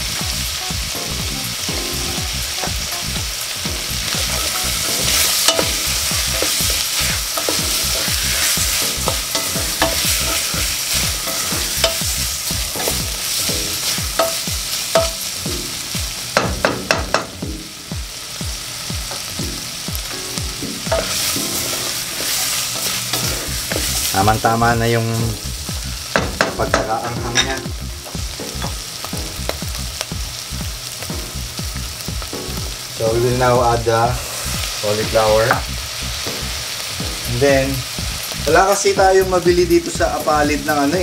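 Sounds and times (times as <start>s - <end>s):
vegetables sizzling in a pot: 0.0s - 41.0s
wooden spatula scraping: 4.2s - 12.0s, 20.9s - 24.5s.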